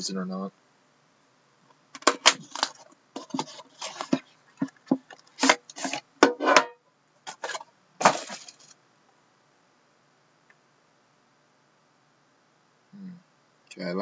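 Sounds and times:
plastic shrink wrap crinkling: 0:02.0 - 0:06.1, 0:07.2 - 0:08.8.

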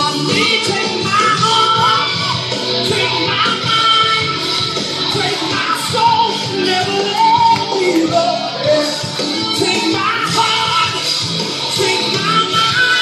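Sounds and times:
gospel song with band: 0:00.0 - 0:13.0.

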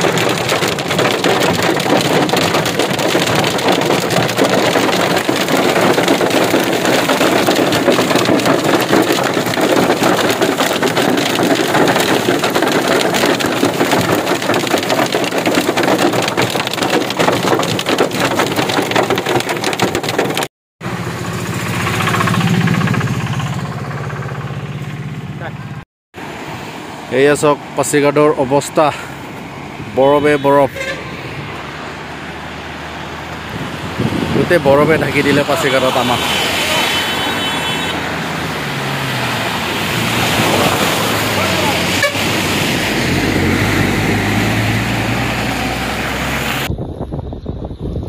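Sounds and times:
hail clattering on car: 0:00.0 - 0:20.5, 0:34.2 - 0:45.9.

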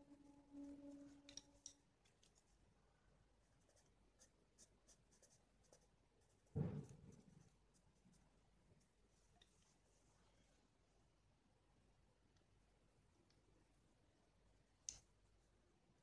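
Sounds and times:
crayon scratching on paper: 0:03.4 - 0:06.4
dull thump: 0:06.5 - 0:07.2.

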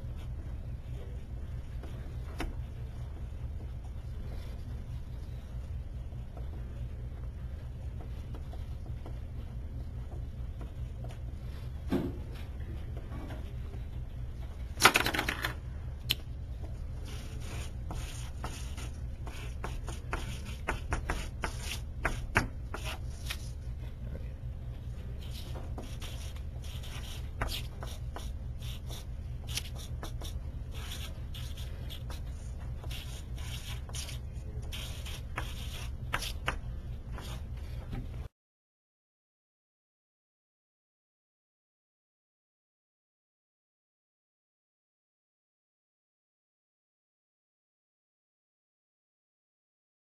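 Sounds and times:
steady low hum: 0:00.0 - 0:38.3
marker scratching on paper: 0:17.0 - 0:23.6, 0:25.2 - 0:37.8.

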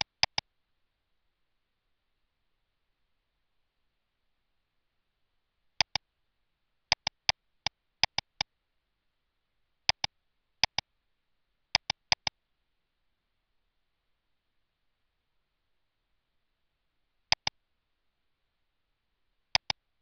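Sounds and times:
computer mouse clicks: 0:00.0 - 0:00.4, 0:05.8 - 0:06.0, 0:06.9 - 0:07.4, 0:08.0 - 0:08.5, 0:09.9 - 0:10.8, 0:11.8 - 0:12.3, 0:17.3 - 0:17.6, 0:19.6 - 0:19.8.

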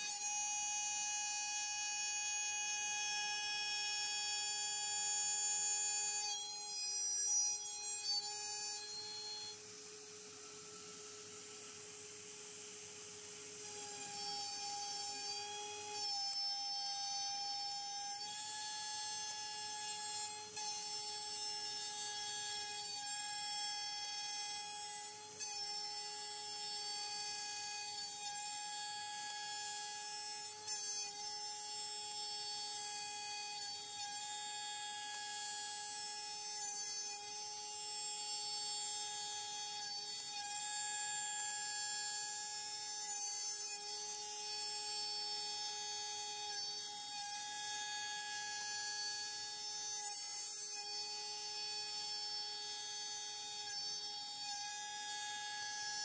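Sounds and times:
router spindle whine: 0:00.0 - 0:56.0.

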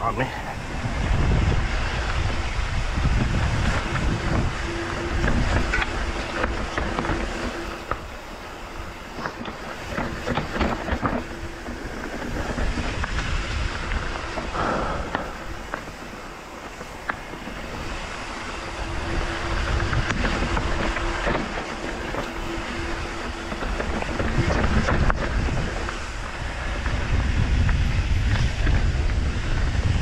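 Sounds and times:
wind buffeting microphone: 0:00.0 - 0:30.0
tyres rumbling over dirt and rock: 0:01.0 - 0:30.0.

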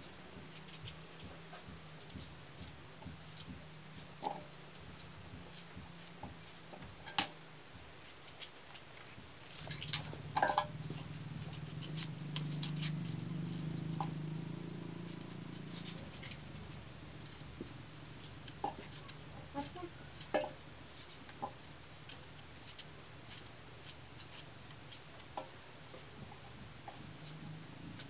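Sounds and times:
knife slicing raw potato: 0:00.4 - 0:07.0, 0:08.0 - 0:25.6
low steady drone: 0:09.6 - 0:20.8.

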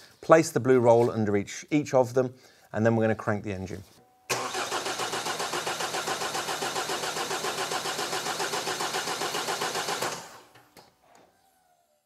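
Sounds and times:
diesel engine cranking on starter: 0:04.3 - 0:10.6.

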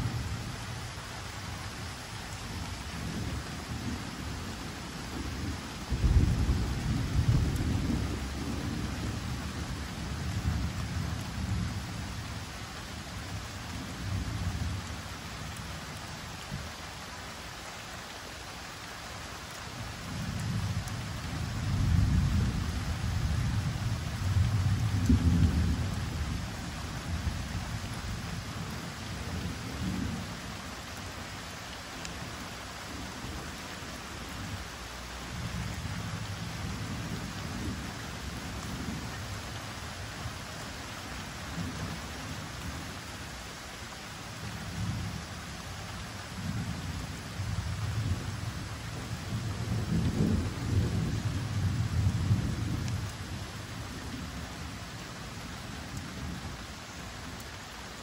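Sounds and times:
gentle rain: 0:00.0 - 0:58.0
rolling thunder: 0:05.2 - 0:09.2.

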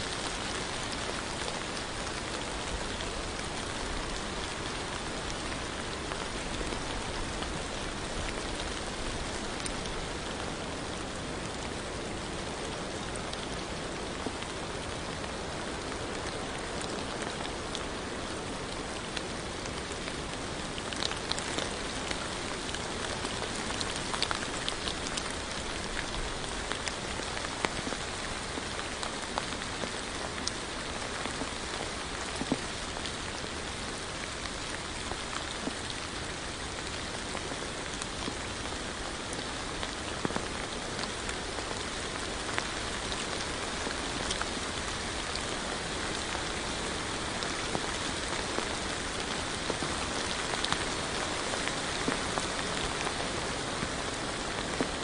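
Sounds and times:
steady rain falling: 0:00.0 - 0:55.0
raindrops ticking: 0:19.2 - 0:36.1.

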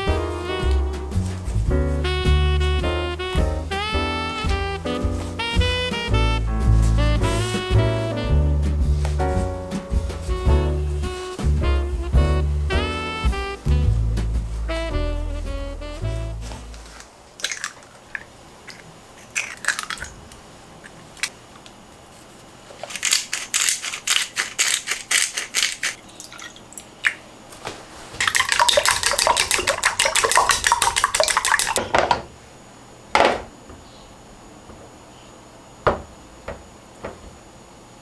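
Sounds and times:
chopsticks beating eggs in bowl: 0:22.8 - 0:26.1, 0:28.2 - 0:31.8.

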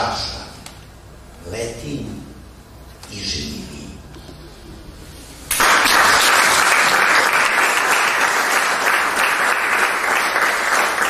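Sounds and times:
audience applause: 0:05.5 - 0:11.0.

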